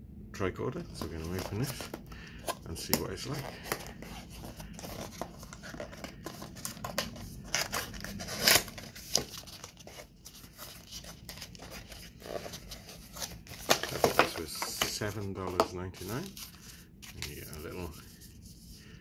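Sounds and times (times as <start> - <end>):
paper scraping and rustling: 0.9 - 18.9
cardboard tearing rasp: 7.5 - 9.3.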